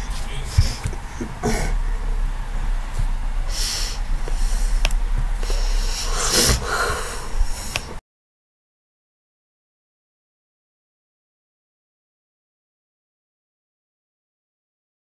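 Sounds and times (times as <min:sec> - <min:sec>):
steady low hum: 0:00.0 - 0:08.0
person breathing heavily: 0:00.2 - 0:02.2, 0:03.3 - 0:08.0.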